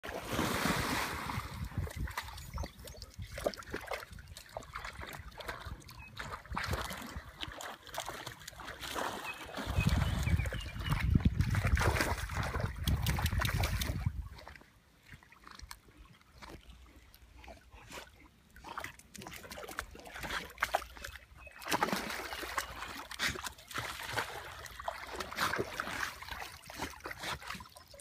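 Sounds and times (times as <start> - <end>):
dogs splashing in water: 0.0 - 28.0.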